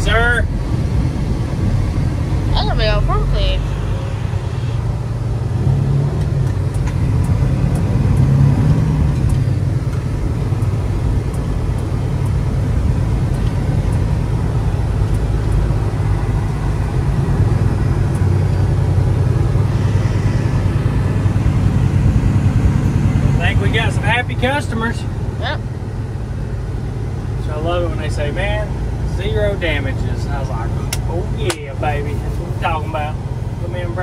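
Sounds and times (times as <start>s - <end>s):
diesel truck engine running: 0.0s - 34.0s
faint light ticks: 13.3s - 14.1s, 15.0s - 15.6s.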